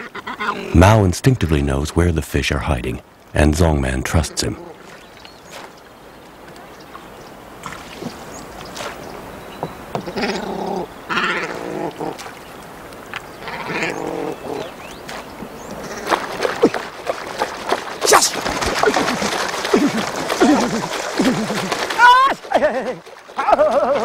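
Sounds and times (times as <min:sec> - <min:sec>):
man calling out: 0:00.7 - 0:04.8.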